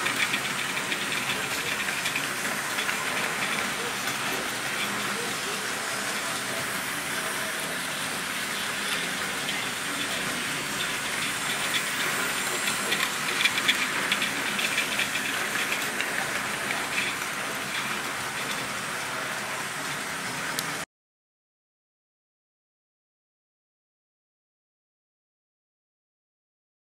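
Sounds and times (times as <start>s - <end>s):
model train motors whirring: 0.0s - 20.8s
quick clicking of train wheels: 0.0s - 20.8s.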